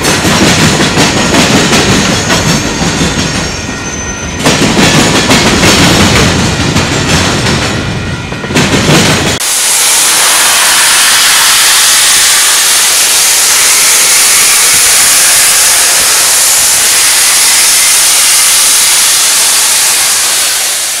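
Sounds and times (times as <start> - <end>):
steam locomotive hissing steam: 9.0 - 21.0.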